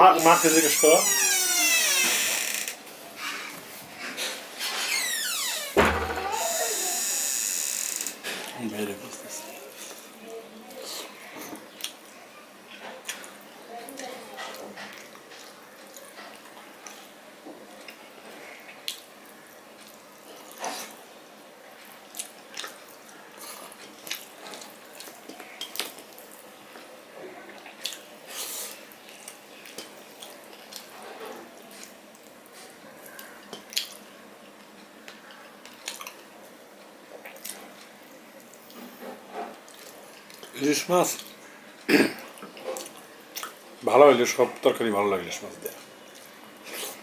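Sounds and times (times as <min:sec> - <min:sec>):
wet chewing and lip smacks: 0:22.1 - 0:26.4, 0:27.6 - 0:28.1, 0:33.0 - 0:34.6, 0:35.6 - 0:36.3, 0:42.4 - 0:43.6.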